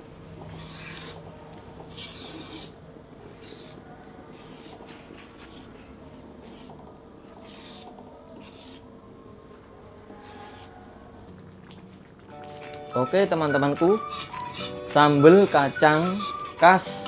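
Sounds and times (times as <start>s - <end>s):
faint hum: 0.0s - 12.5s
utensil scraping metal wok: 0.5s - 1.2s, 1.9s - 8.9s, 13.4s - 17.0s.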